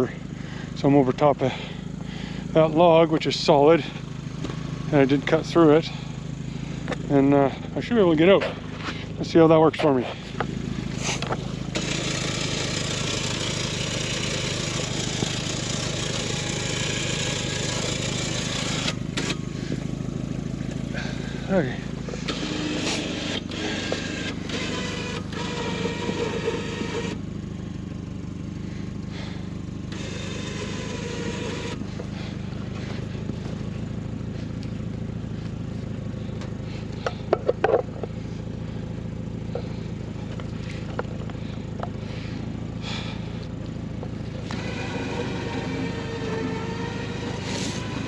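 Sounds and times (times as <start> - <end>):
vehicle engine running: 0.0 - 48.0
winch pulling cable: 11.0 - 19.8, 20.9 - 27.2, 29.9 - 33.0, 44.4 - 48.0.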